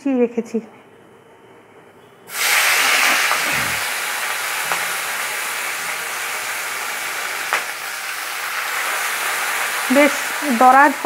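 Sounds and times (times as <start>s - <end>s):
onions sizzling in hot oil: 2.3s - 11.0s.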